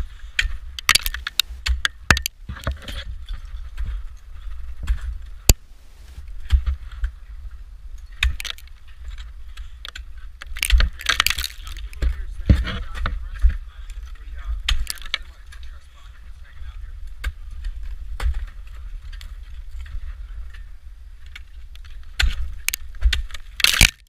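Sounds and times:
ice tools striking ice: 0:00.8 - 0:02.3, 0:10.5 - 0:12.1, 0:22.2 - 0:24.0
sharp ice crack: 0:00.8 - 0:02.4, 0:08.2 - 0:08.7, 0:09.9 - 0:12.1, 0:14.7 - 0:15.3, 0:22.2 - 0:24.0.

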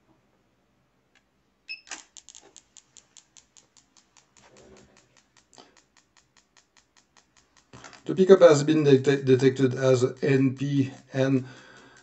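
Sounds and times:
ignition coil ticking: 0:02.2 - 0:12.0.

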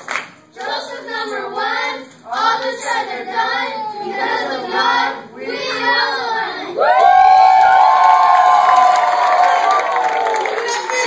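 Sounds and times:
children chanting in unison: 0:00.6 - 0:06.9
children shouting: 0:03.5 - 0:11.0.

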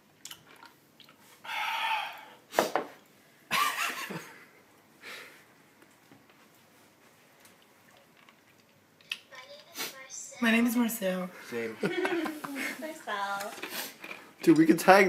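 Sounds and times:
loud breathy blows: 0:01.4 - 0:02.4.

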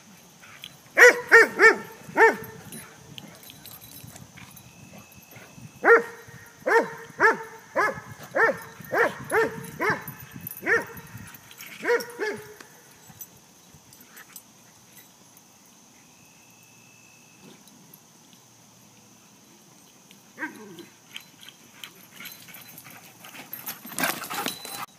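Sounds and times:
dog barking: 0:01.0 - 0:02.6, 0:05.8 - 0:11.0, 0:11.8 - 0:12.6.

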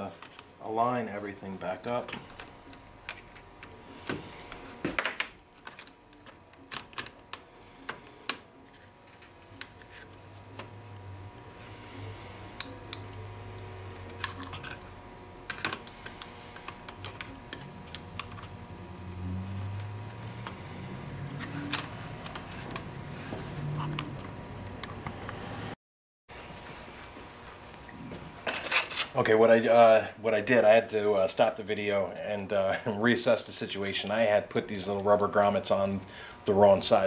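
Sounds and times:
faint steady hum: 0:00.0 - 0:37.0.

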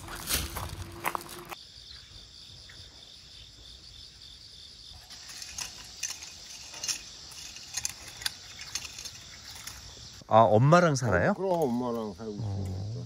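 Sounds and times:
hoes scraping and knocking soil: 0:00.0 - 0:01.6, 0:05.0 - 0:10.2
insects chirring: 0:00.0 - 0:13.0.

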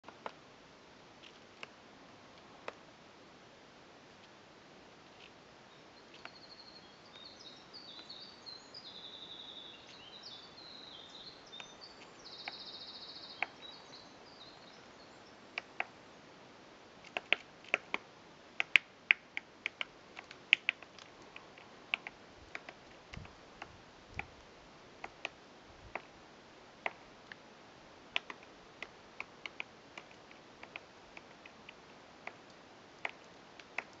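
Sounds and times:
high chirpy bird calls: 0:05.7 - 0:15.8
woodpecker pecking at tree: 0:13.4 - 0:13.6, 0:15.5 - 0:16.0, 0:17.0 - 0:24.4, 0:25.0 - 0:26.1, 0:26.8 - 0:27.4, 0:28.1 - 0:34.0.

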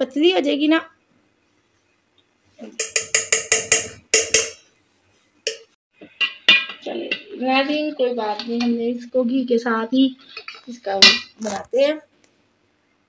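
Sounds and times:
metal spoon tapping steel jar: 0:02.7 - 0:04.6, 0:05.5 - 0:07.2.

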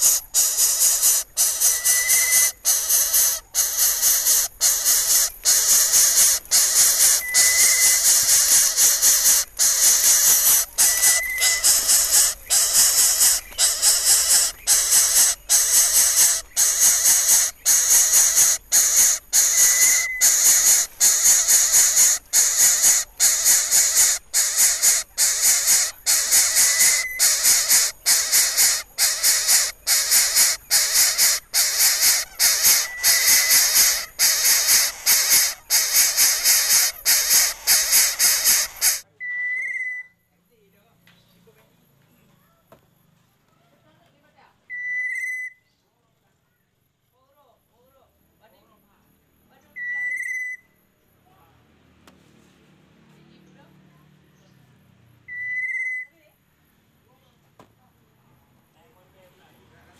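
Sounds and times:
chick hissing: 0:00.0 - 0:39.1.

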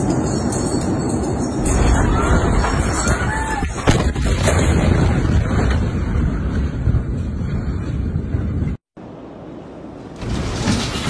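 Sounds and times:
explosion roar: 0:01.6 - 0:06.6.

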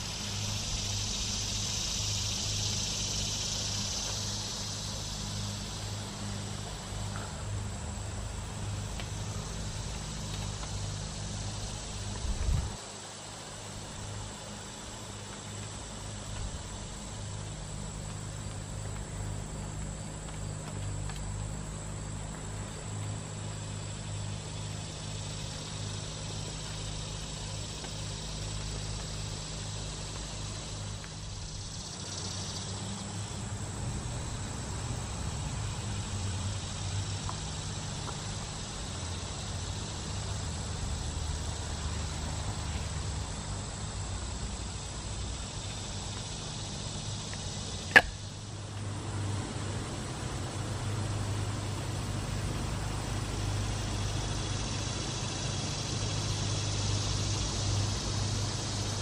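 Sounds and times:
steady low rumble: 0:00.0 - 0:12.8
high-pitched insect drone: 0:00.0 - 0:59.0.

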